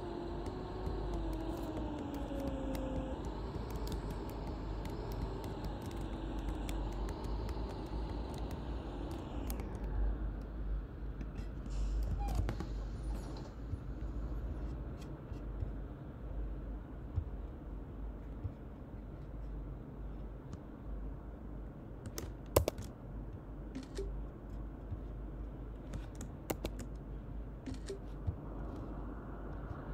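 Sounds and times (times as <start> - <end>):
interior clicks and creaks: 0.0 - 10.5, 11.2 - 15.9
drivetrain whine: 0.0 - 11.6
bus engine rumble: 0.0 - 21.8.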